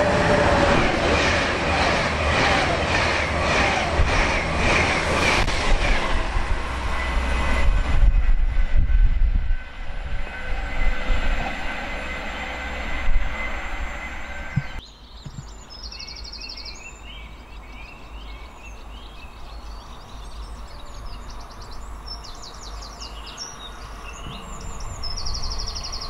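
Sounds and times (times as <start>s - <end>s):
train rumble: 0.0s - 15.6s, 18.0s - 26.0s
train wheels over rail joints: 0.0s - 15.6s.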